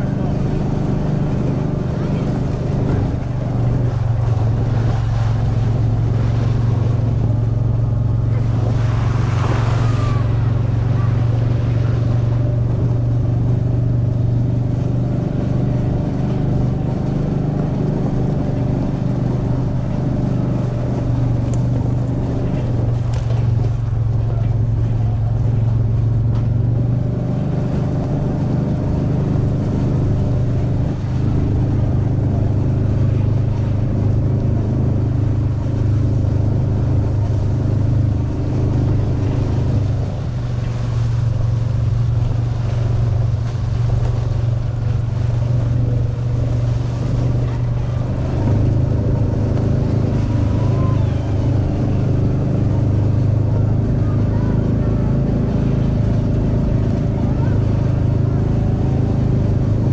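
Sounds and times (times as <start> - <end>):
vehicle engine running steadily: 0.0 - 59.9.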